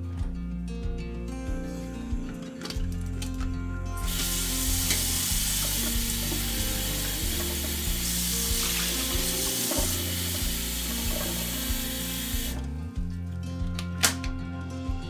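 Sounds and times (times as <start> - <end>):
tap water running: 4.0 - 12.6
water splashing into steel sink: 4.0 - 12.6.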